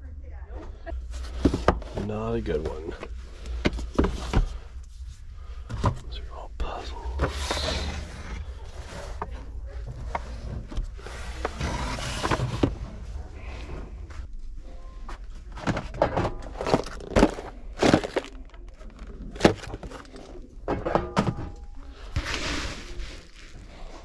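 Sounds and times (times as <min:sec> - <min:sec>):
thunks and knocks of handled items: 0:01.1 - 0:02.1, 0:02.7 - 0:04.8, 0:15.1 - 0:22.4.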